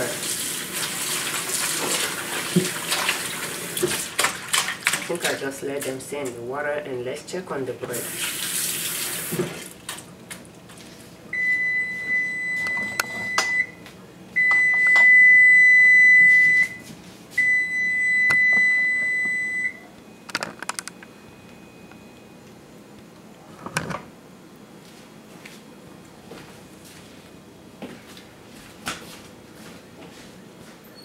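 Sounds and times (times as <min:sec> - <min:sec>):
oven control long beeps: 0:11.3 - 0:22.9.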